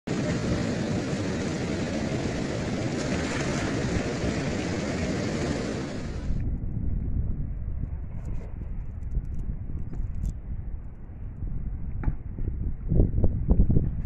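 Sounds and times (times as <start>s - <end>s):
river water rushing: 0.1s - 6.4s.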